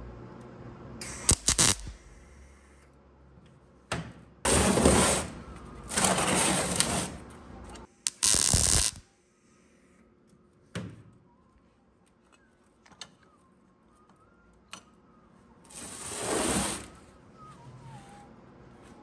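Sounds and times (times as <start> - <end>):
welder arc crackling: 1.0 - 2.1, 8.1 - 9.0
welder arc popping: 1.0 - 2.2, 8.1 - 9.0.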